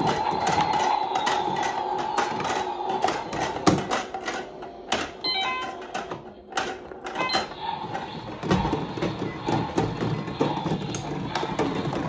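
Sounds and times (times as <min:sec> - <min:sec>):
electronic beeps: 0:05.2 - 0:05.8.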